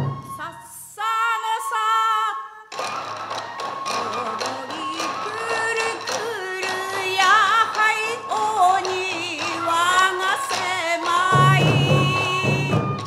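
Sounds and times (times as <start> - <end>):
drum beats: 2.7 - 13.0.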